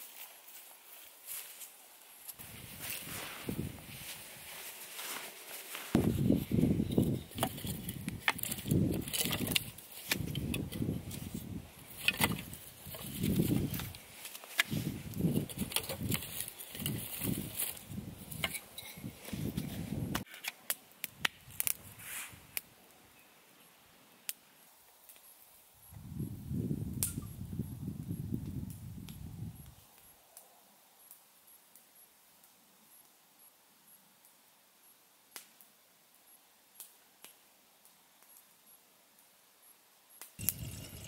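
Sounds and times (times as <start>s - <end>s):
low scuffing in sand: 0.0s - 6.4s
kindling fire crackling: 0.0s - 33.2s, 35.2s - 39.5s, 40.1s - 41.0s
fire popping: 2.3s - 23.0s, 25.1s - 30.0s, 40.3s - 41.0s
sticks rustling and clicking: 4.0s - 19.4s.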